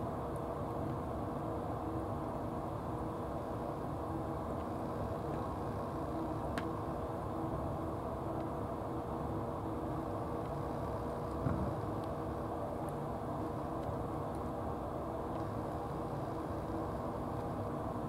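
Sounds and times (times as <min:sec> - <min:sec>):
low mechanical hum: 0:00.0 - 0:18.0
faint thump: 0:11.4 - 0:11.8.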